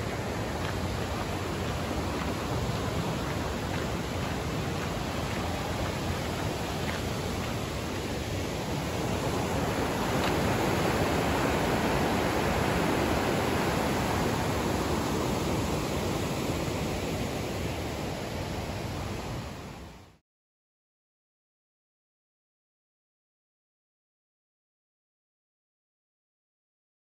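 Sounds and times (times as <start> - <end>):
water rushing through spillway: 0.0 - 20.2.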